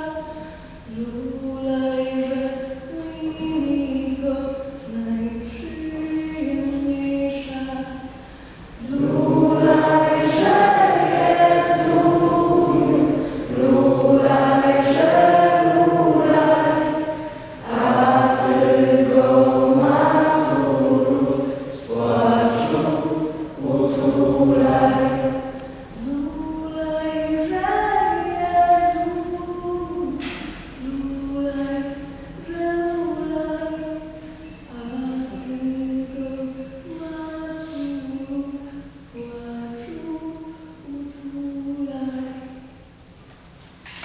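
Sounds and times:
group singing unaccompanied: 0:08.8 - 0:34.1.

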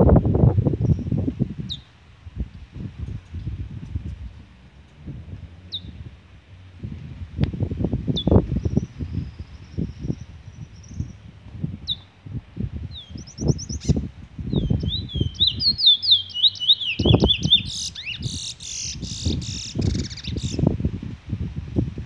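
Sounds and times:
wind rumble on microphone: 0:00.0 - 0:22.0
bird singing whistled notes: 0:00.8 - 0:01.9, 0:05.7 - 0:06.0, 0:08.1 - 0:12.1, 0:12.9 - 0:20.7.

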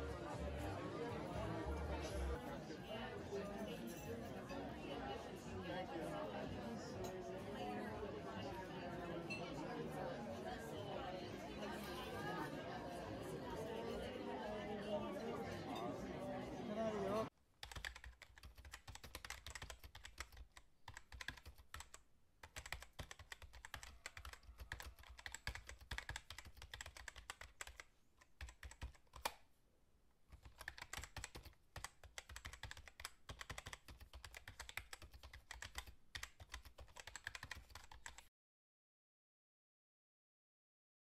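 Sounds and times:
keyboard typing: 0:17.6 - 0:29.4, 0:30.3 - 0:38.3.

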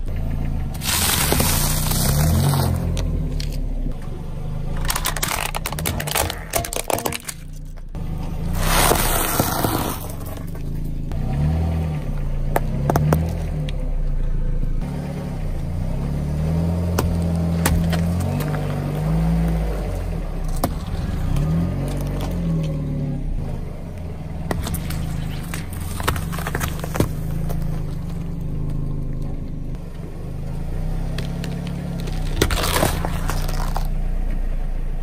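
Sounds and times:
car engine revving: 0:00.0 - 0:06.8, 0:07.5 - 0:35.0
tyre crushing crisp food: 0:00.8 - 0:03.5, 0:04.8 - 0:07.7, 0:31.2 - 0:34.0.

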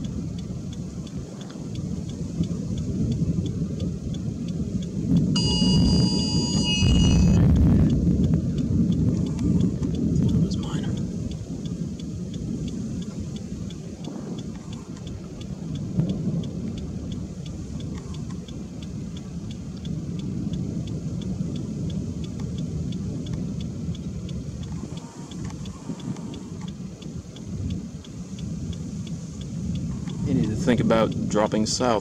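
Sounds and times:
hazard flasher ticking: 0:00.0 - 0:32.0
low wind rumble: 0:00.0 - 0:32.0.

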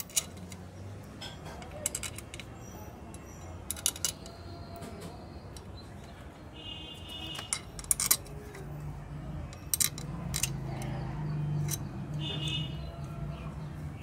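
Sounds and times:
steel bolts clinking: 0:00.0 - 0:06.1, 0:07.2 - 0:08.8, 0:09.5 - 0:10.9, 0:11.6 - 0:12.8.

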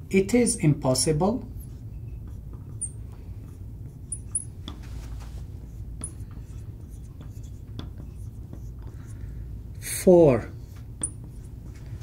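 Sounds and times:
marker scratching on glass: 0:01.4 - 0:12.0
marker squeaking on glass: 0:01.5 - 0:04.8, 0:05.6 - 0:09.2, 0:10.5 - 0:11.8.

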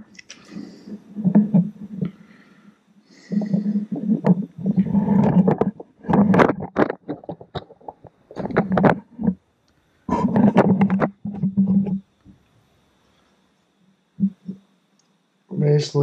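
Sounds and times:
flywheel rumbling scraping: 0:03.2 - 0:09.4.

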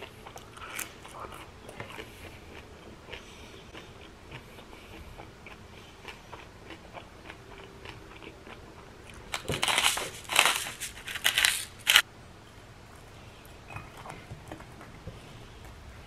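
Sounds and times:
spice mill grinding: 0:09.3 - 0:12.0.

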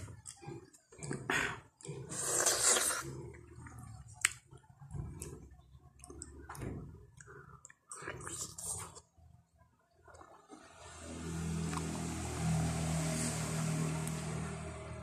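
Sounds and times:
wet mouth eating sounds: 0:00.0 - 0:09.1.

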